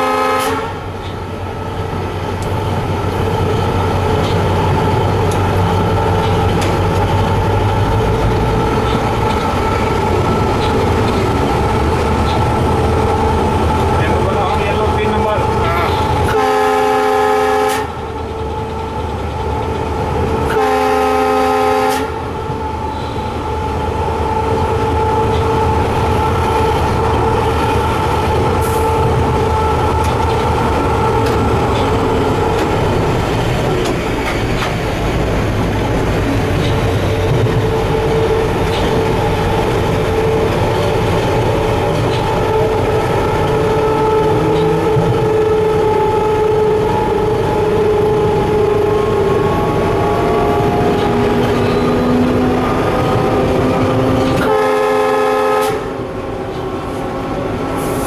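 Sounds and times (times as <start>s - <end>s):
locomotive horn blasts: 0.0s - 0.9s, 15.6s - 18.1s, 20.4s - 22.3s, 43.5s - 56.2s
locomotive running rumble and whine: 0.0s - 58.0s.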